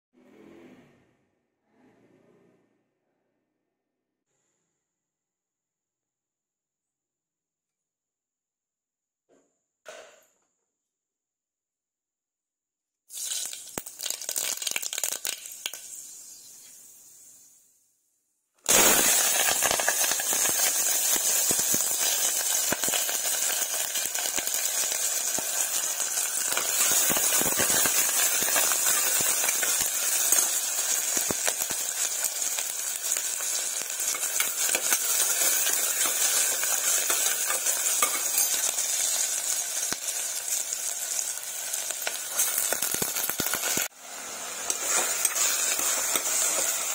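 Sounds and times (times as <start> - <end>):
vegetables sizzling in hot oil: 13.1 - 17.7, 18.7 - 46.9
spoon scraping a pan: 34.0 - 39.3, 44.7 - 46.9.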